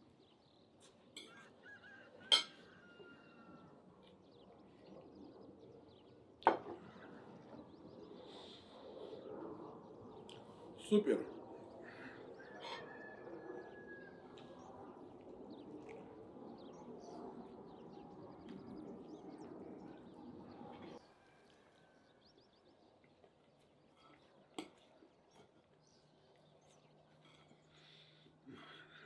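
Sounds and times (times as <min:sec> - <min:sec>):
small birds chirping: 0:00.0 - 0:29.0
man chewing food: 0:23.0 - 0:28.4.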